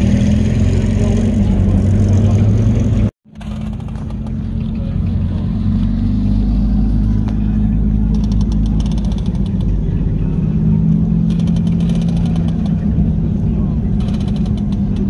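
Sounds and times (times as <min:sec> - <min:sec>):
vehicle engine droning: 0:00.0 - 0:15.0
rapid light clicking: 0:14.0 - 0:15.0.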